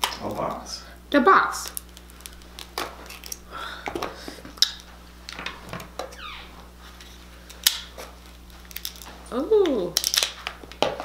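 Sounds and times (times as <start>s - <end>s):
crab shells cracking: 1.6s - 6.0s, 7.5s - 11.0s.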